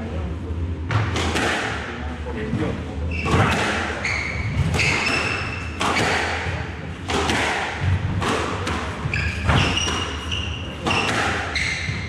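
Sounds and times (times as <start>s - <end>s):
squash ball hitting rackets and walls: 0.8s - 2.0s, 3.1s - 12.0s
shoes squeaking on wooden floor: 4.0s - 6.1s, 9.1s - 12.0s.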